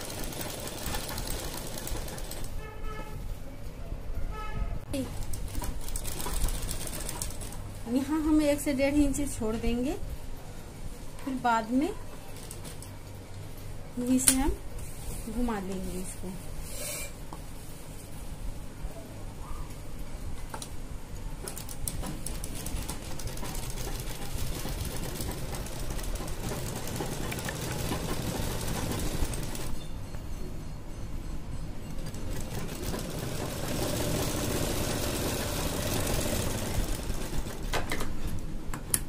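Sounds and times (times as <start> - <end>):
sewing machine running: 0.0 - 2.6, 5.2 - 7.6, 21.5 - 29.7, 32.0 - 37.7.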